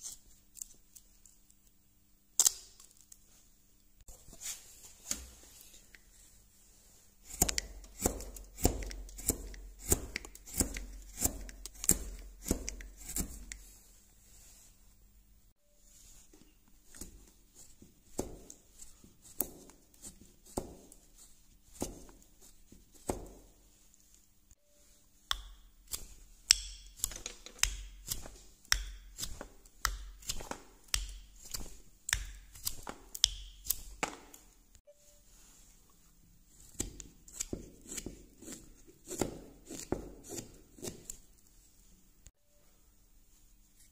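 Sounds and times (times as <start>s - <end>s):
knife carving wood chips: 7.2s - 13.8s, 16.8s - 23.6s, 25.3s - 34.5s, 36.5s - 41.4s
chisel cutting wood: 7.3s - 13.5s.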